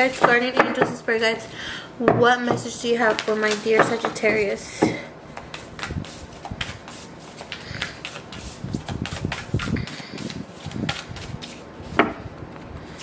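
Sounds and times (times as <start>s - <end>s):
cards being shuffled: 5.4s - 12.0s.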